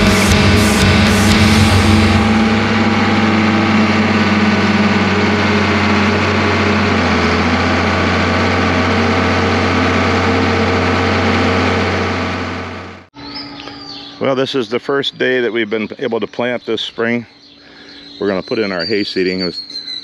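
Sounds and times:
tractor diesel engine running: 0:00.0 - 0:13.1.

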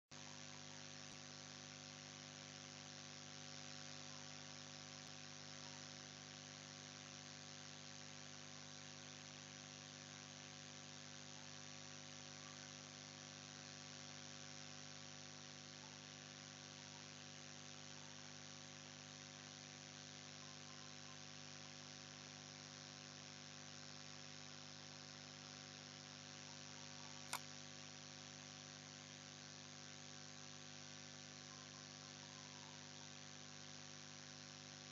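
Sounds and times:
sharp click: 0:27.2 - 0:27.5.

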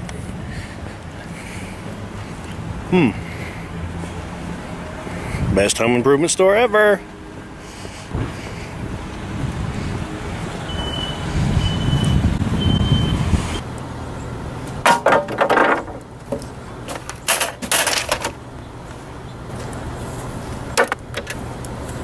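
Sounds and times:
low rumble of vehicles: 0:00.0 - 0:22.0
short high beeps: 0:10.7 - 0:13.2
knocking and clatter of tools: 0:14.8 - 0:18.3.

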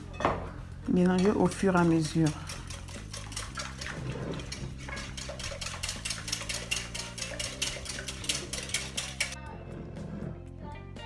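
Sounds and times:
whisk clicking against glass bowl: 0:01.2 - 0:09.4.

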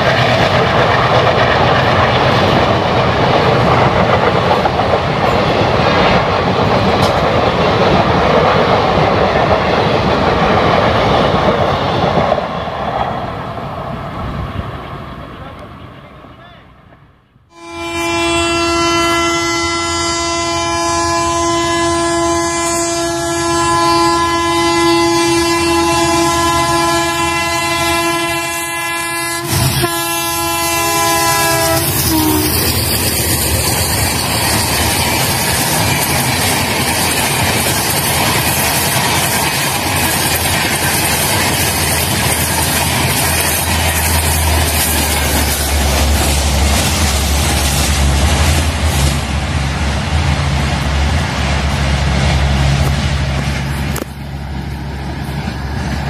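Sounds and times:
train rushing past on rails: 0:00.0 - 0:56.0
locomotive horn blast: 0:17.5 - 0:32.7.

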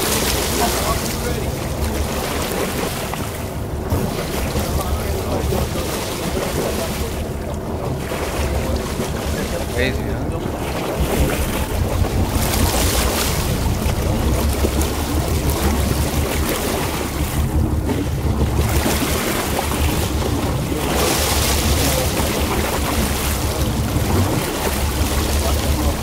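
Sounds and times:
sea water washing: 0:00.0 - 0:26.0
wind buffeting microphone: 0:00.0 - 0:26.0.

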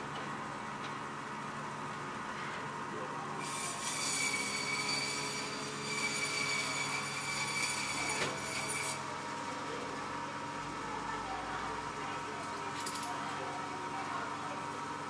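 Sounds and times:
band saw blade whining: 0:03.4 - 0:09.0.

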